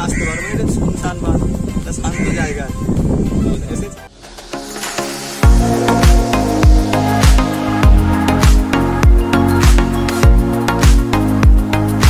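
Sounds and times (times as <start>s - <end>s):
held synth chords: 4.1s - 12.0s
kick drum beat: 5.4s - 11.7s.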